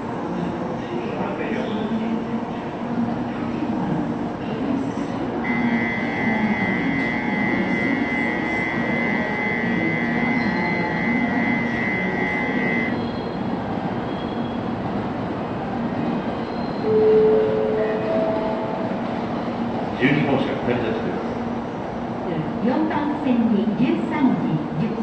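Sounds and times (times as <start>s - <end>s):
train hum: 0.0s - 25.0s
electronic departure bell: 5.5s - 13.0s.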